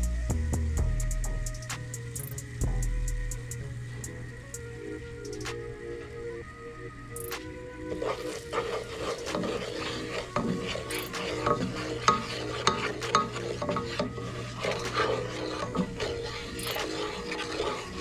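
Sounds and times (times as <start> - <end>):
spices sizzling in oil: 7.2 - 18.0
wooden spoon scraping a pot: 7.9 - 18.0.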